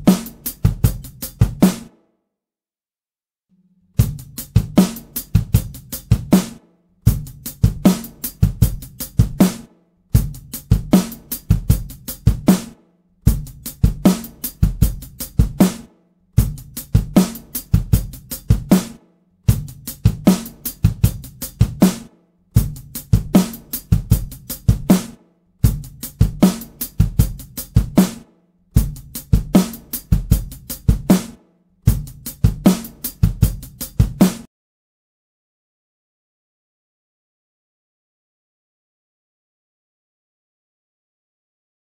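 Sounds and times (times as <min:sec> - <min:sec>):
drum kit phrase: 0:00.0 - 0:01.9, 0:04.0 - 0:34.5.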